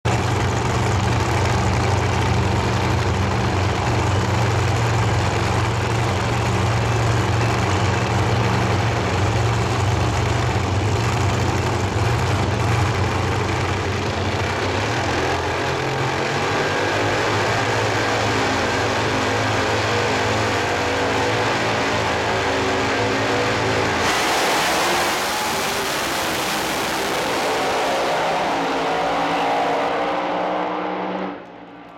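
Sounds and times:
drag racing engines revving: 0.2s - 31.9s
cars racing down strip: 14.6s - 31.9s.

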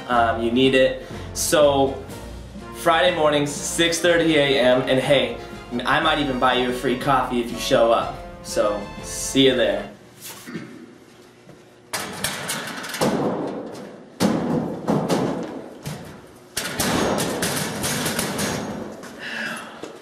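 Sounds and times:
metal lockers banging: 12.0s - 19.0s.

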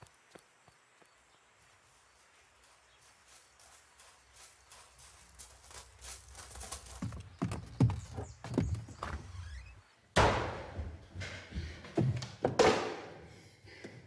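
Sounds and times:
running footsteps on wooden boards: 0.2s - 9.5s, 10.2s - 12.8s
loud thud: 10.2s - 10.8s.

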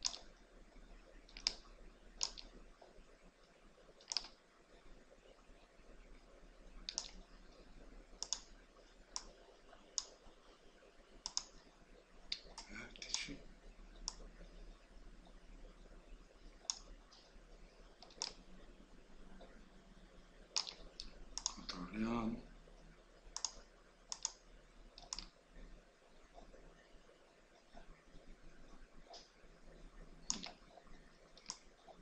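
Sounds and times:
computer mouse clicking: 0.0s - 0.3s, 1.3s - 2.9s, 4.0s - 4.4s, 6.8s - 10.4s, 11.2s - 11.6s, 12.3s - 13.4s, 14.0s - 14.4s, 16.6s - 17.3s, 17.9s - 18.4s, 20.5s - 21.8s, 23.3s - 25.4s, 30.2s - 32.0s
faint low hum: 0.0s - 32.0s.

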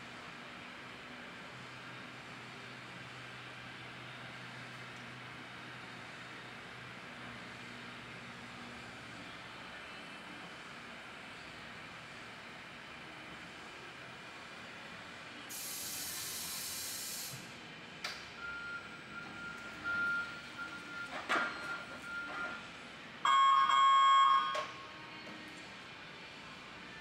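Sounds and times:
hydraulic platform lowering hiss: 15.5s - 17.6s.

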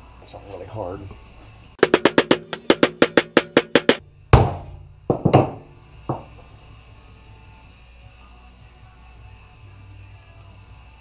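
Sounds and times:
hammer tapping on metal: 1.8s - 6.3s.

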